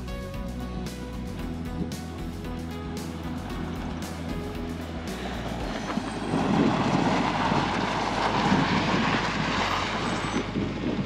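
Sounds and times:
background music: 0.0s - 7.2s
car engine running: 0.0s - 11.0s.

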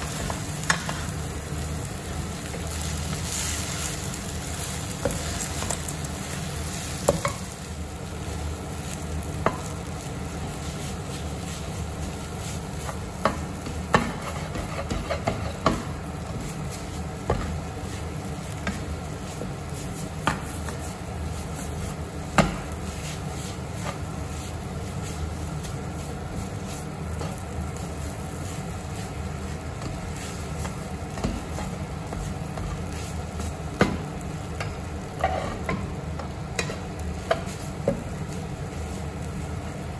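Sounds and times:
food sizzling in a pan: 0.0s - 39.9s
spatula scraping a frying pan: 2.8s - 5.9s, 10.5s - 33.6s, 34.6s - 39.2s.

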